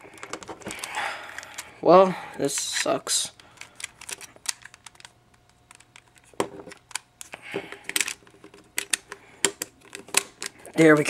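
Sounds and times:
plastic puzzle pieces clicking: 3.5s - 7.1s, 7.9s - 10.5s.

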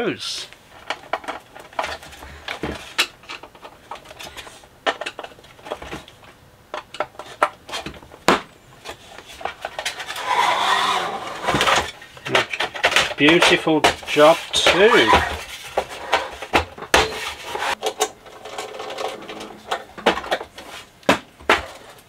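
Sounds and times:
metal scraping: 8.8s - 19.8s.

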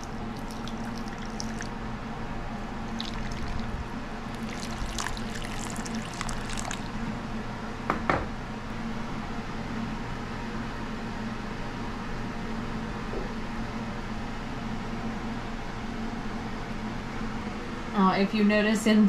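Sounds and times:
water pouring into a skillet: 0.0s - 1.7s, 2.8s - 3.7s, 4.3s - 7.0s
steady low hum: 0.0s - 19.0s.

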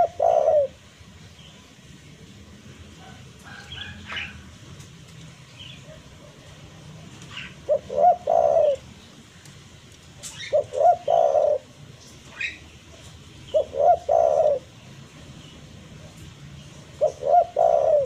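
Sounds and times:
dove cooing: 0.0s - 0.9s, 7.3s - 9.1s, 10.3s - 14.8s, 16.8s - 18.0s
small birds chirping: 0.0s - 18.0s.

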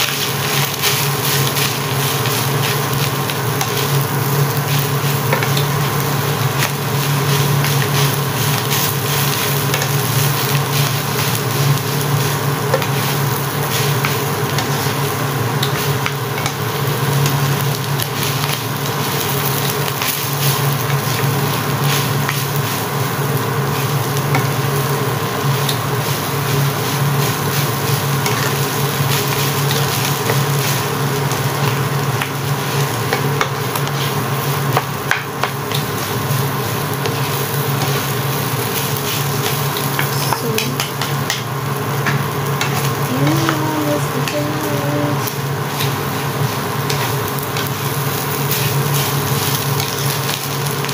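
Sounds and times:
rice sizzling in a wok: 0.0s - 50.9s
steady low hum: 35.8s - 49.5s
spatula scraping a wok: 45.6s - 50.2s.

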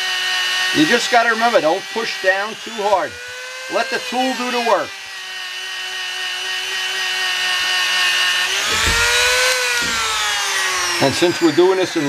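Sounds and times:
rotary tool motor whine: 0.0s - 12.0s
buffing bit rubbing metal: 8.6s - 12.0s.

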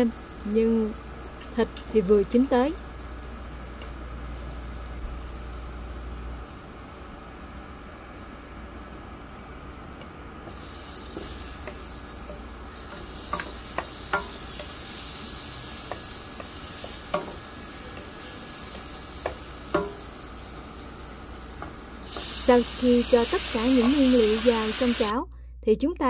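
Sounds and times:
butter and oil sizzling in pan: 10.5s - 25.1s
wooden spatula knocking on pan: 13.3s - 14.7s, 15.9s - 17.4s, 18.7s - 20.1s.

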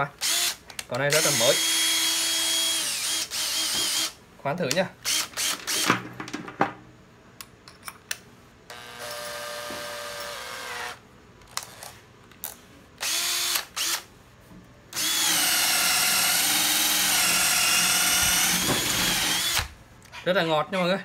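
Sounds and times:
cordless drill motor whine: 0.2s - 0.6s, 1.2s - 4.1s, 8.7s - 11.0s, 13.0s - 14.0s, 15.0s - 19.7s
drill clicks: 5.0s - 5.9s, 13.0s - 14.0s, 15.0s - 19.7s.

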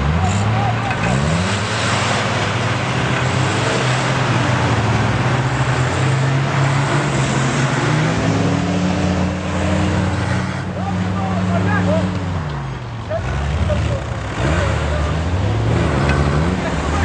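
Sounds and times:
off-road vehicle engine revving: 0.0s - 17.0s.

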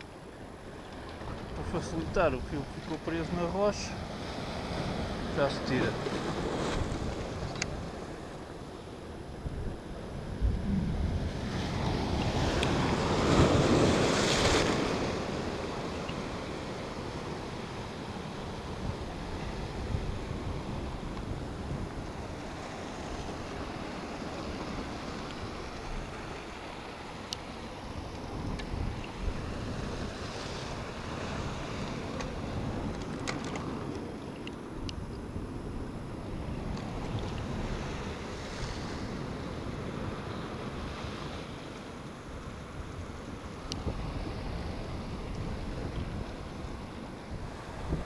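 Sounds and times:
surf on rocks: 0.0s - 48.0s
wind buffeting microphone: 9.1s - 15.8s, 42.7s - 48.0s.

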